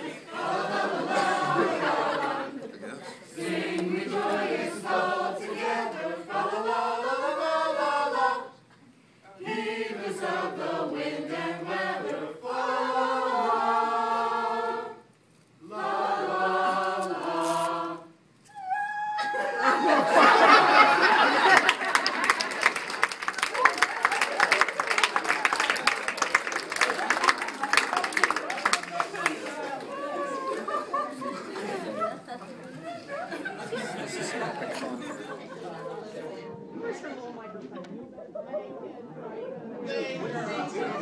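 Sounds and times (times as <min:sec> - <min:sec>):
group singing a cappella: 0:00.0 - 0:18.3
audience applause: 0:19.4 - 0:30.7.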